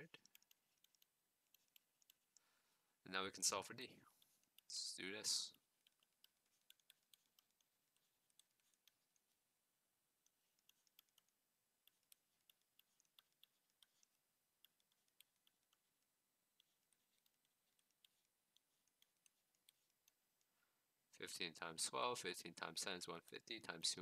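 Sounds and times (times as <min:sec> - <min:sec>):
stylus tapping on tablet: 0:00.1 - 0:02.5, 0:04.2 - 0:09.4, 0:10.2 - 0:20.2.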